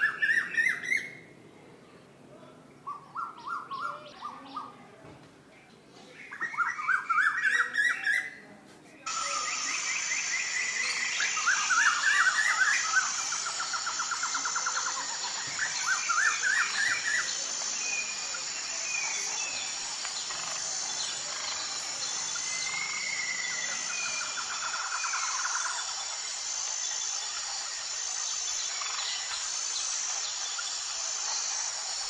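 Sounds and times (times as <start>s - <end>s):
small birds chirping: 0.0s - 8.4s, 9.0s - 32.0s.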